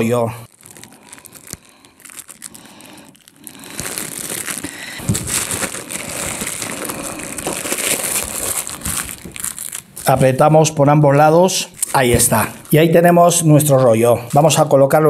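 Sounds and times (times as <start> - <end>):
cling film crinkling: 0.0 - 10.4, 11.7 - 12.8
bamboo mat rustling: 3.8 - 10.1.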